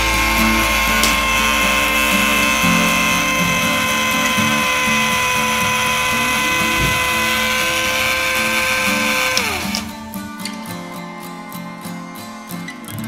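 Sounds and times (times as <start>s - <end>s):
small motor whine: 0.0s - 10.2s.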